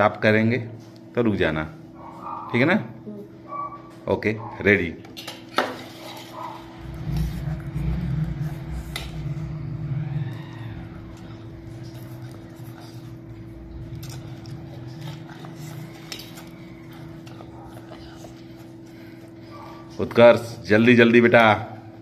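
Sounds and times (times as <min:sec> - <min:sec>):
steady low hum: 0:00.0 - 0:22.0
low rumble: 0:06.7 - 0:14.0.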